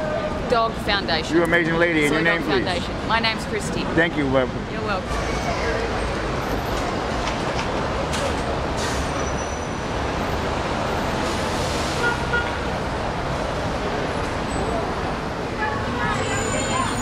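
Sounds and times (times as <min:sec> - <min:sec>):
road traffic passing: 0:00.0 - 0:17.0.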